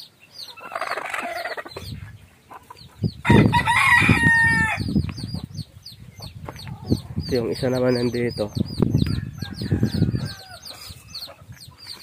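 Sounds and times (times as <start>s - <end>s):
rooster crowing: 3.2s - 4.9s, 9.1s - 11.0s.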